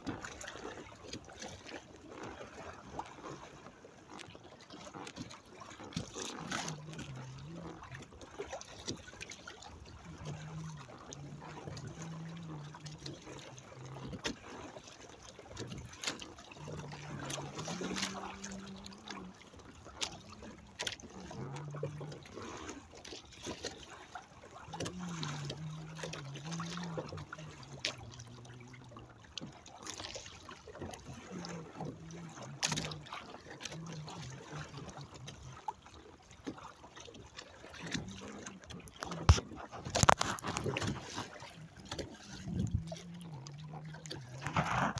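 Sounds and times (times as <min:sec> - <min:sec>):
water slapping against hulls: 0:00.0 - 0:44.9
low wavering hum: 0:40.0 - 0:44.9.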